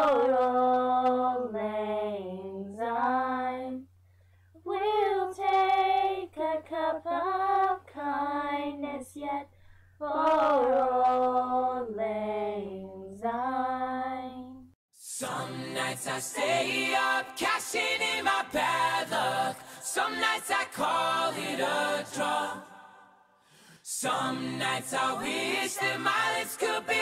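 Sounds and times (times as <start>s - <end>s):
girls singing unaccompanied: 10.1s - 12.6s, 15.2s - 22.8s, 24.0s - 27.0s
recorded song with backing: 15.0s - 27.0s.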